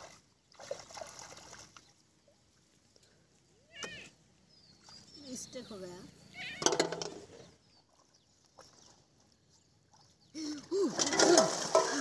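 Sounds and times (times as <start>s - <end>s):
shallow water splashing: 0.0s - 2.7s, 10.7s - 12.0s.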